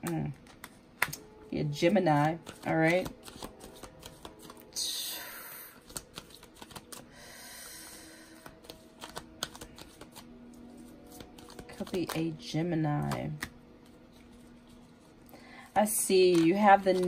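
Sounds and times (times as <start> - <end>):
cards shuffling: 0.0 - 1.2, 1.8 - 4.8, 5.8 - 7.1, 8.3 - 15.1, 15.8 - 17.0
deck of cards swishing: 5.8 - 7.0.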